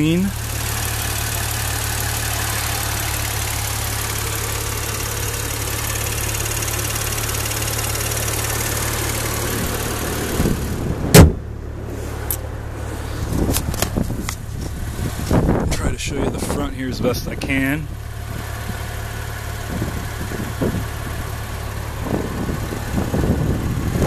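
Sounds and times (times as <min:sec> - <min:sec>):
car engine idling: 0:00.0 - 0:24.0
car bonnet shutting thump: 0:10.4 - 0:11.5.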